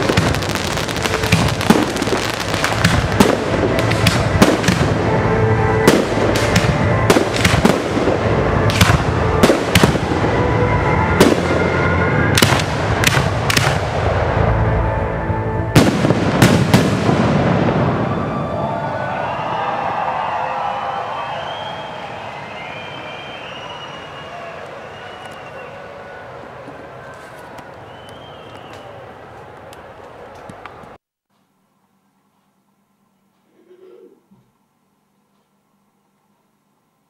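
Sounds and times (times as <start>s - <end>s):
fireworks bursting and crackling: 0.0s - 14.4s, 15.8s - 18.7s
music: 0.0s - 16.7s.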